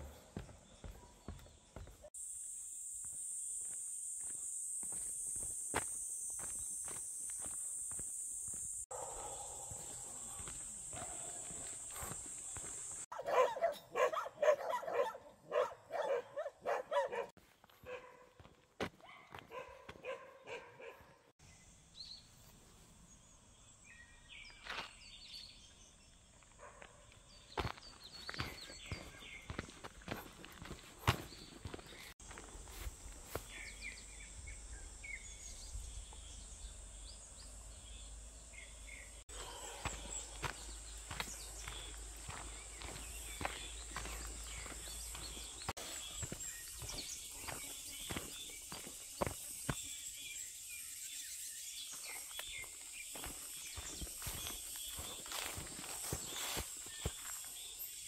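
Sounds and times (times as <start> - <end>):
footsteps on trail: 0.0 - 13.2, 17.4 - 21.0, 24.4 - 34.0, 39.2 - 50.4, 51.7 - 58.0
high insect drone: 1.8 - 13.1, 32.2 - 58.0
bird chirping: 33.5 - 58.0.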